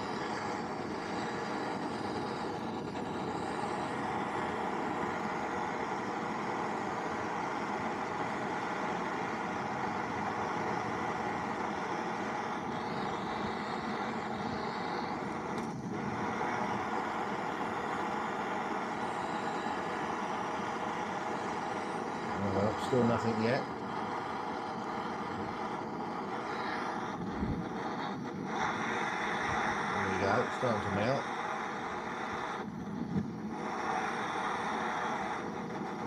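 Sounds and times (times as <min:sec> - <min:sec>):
blowtorch hissing: 0:00.0 - 0:36.0.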